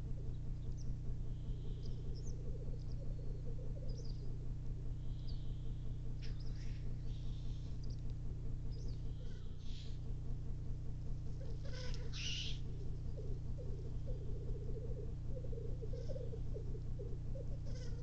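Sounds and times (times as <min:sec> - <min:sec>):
small birds chirping: 0:00.0 - 0:10.2, 0:11.0 - 0:18.0
grouse hissing calls: 0:01.3 - 0:04.4, 0:05.0 - 0:07.8, 0:09.1 - 0:10.0, 0:11.3 - 0:18.0
grouse bubbling coo: 0:01.3 - 0:05.1, 0:11.2 - 0:18.0.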